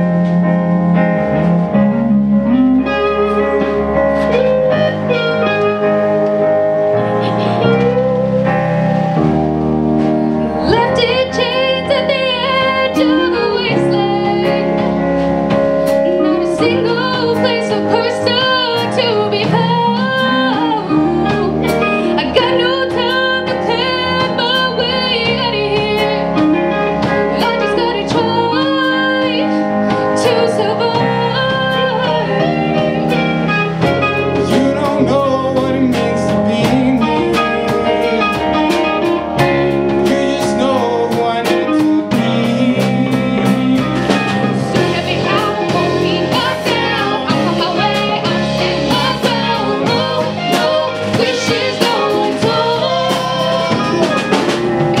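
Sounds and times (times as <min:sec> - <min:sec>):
bass: 0:00.0 - 0:55.0
drums: 0:00.0 - 0:55.0
electric guitar: 0:00.0 - 0:55.0
keyboard: 0:00.0 - 0:55.0
woman singing: 0:10.5 - 0:15.0, 0:16.0 - 0:33.4, 0:34.1 - 0:55.0.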